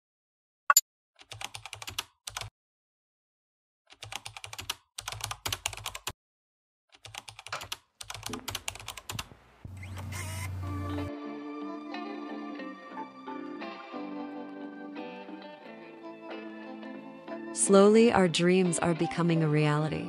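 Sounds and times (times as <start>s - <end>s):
computer keyboard typing: 1.2s - 2.5s, 3.9s - 6.2s, 7.0s - 9.3s
music: 10.4s - 20.0s.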